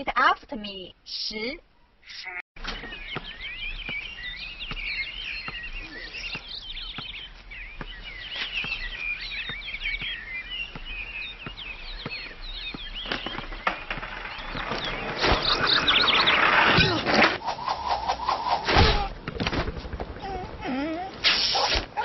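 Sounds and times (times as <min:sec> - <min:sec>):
birds chirping and twittering: 0:00.0 - 0:22.0.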